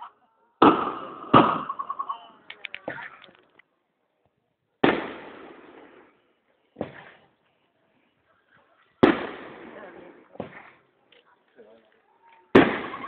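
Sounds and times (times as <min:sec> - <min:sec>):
fireworks bangs: 0:00.6 - 0:01.8, 0:04.8 - 0:06.2, 0:06.8 - 0:07.3, 0:09.0 - 0:10.9, 0:12.5 - 0:13.0
fireworks crackling pops: 0:04.8 - 0:06.2, 0:09.0 - 0:13.0.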